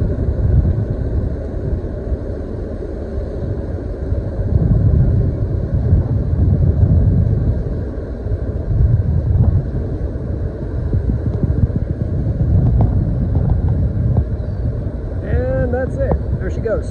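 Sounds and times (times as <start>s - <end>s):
wind buffeting microphone: 0.0s - 16.9s.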